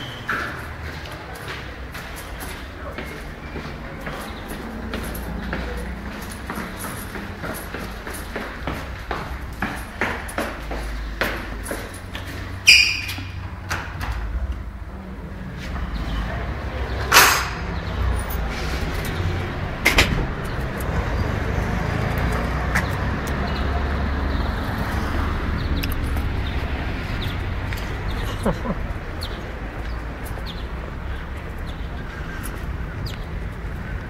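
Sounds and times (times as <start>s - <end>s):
traffic rumble: 0.0s - 34.0s
door clacking and squeaking: 12.5s - 14.4s.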